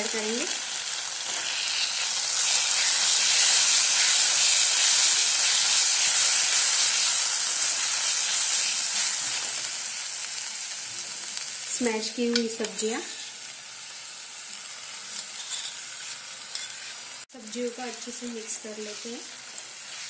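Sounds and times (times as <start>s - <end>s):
food sizzling in hot oil: 0.0s - 20.0s.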